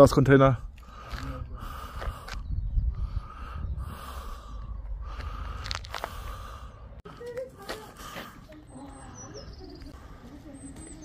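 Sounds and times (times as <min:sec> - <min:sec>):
wind rumbling on microphone: 0:00.6 - 0:07.0
walking scuffs and rustles: 0:07.2 - 0:11.0.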